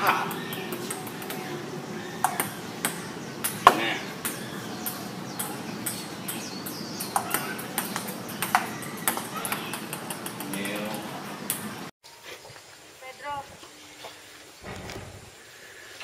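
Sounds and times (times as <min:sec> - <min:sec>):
ping-pong ball clicking: 0:02.2 - 0:11.6.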